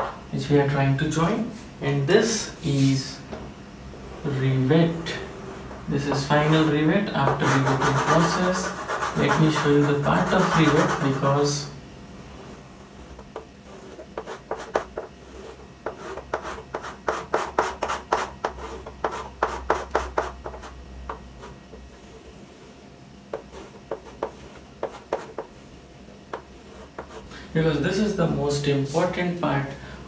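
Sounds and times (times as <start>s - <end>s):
chalk strokes on a chalkboard: 5.2s - 11.3s, 12.3s - 25.6s, 26.3s - 27.3s.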